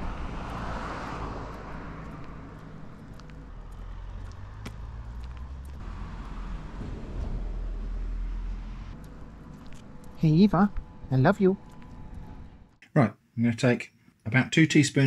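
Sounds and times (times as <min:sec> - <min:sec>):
car passing by: 0:00.0 - 0:09.5.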